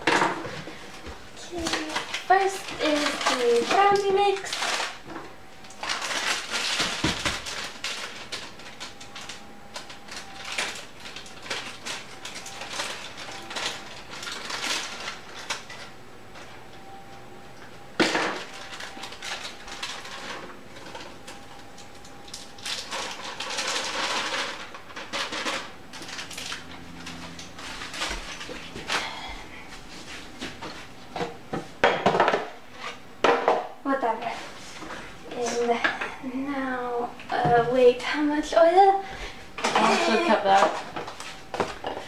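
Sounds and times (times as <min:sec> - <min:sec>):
packaging rustling and crinkling: 0:00.7 - 0:16.0, 0:18.3 - 0:30.9.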